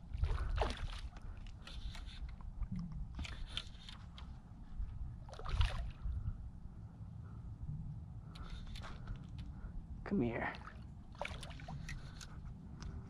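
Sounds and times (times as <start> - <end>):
steady low rumble: 0.0 - 13.0
fish splashing in water: 5.3 - 6.0, 10.6 - 12.2.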